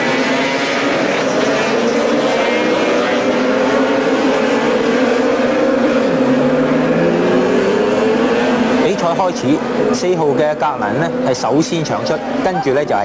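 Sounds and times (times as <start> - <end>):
racing motorcycles accelerating: 0.0 - 13.0.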